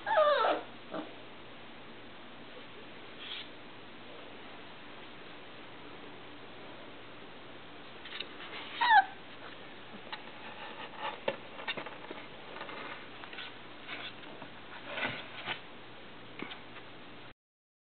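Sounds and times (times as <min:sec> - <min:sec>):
faint puppy squeaks: 0:00.0 - 0:01.1, 0:08.6 - 0:09.2
puppy squealing: 0:00.0 - 0:01.1, 0:08.7 - 0:09.2.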